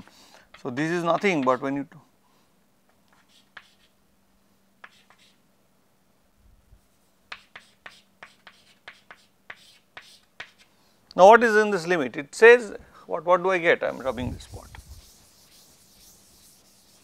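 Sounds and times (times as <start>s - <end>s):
chalk tapping and scratching on chalkboard: 0.5s - 1.7s, 3.1s - 4.0s, 4.8s - 5.4s, 7.3s - 10.7s, 13.9s - 17.0s.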